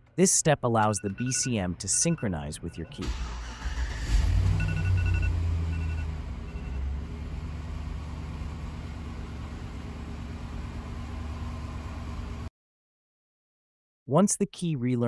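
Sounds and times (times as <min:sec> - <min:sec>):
truck engine starting and idling: 0:00.0 - 0:12.5
dashboard chime beeps: 0:00.6 - 0:03.1, 0:04.6 - 0:06.8.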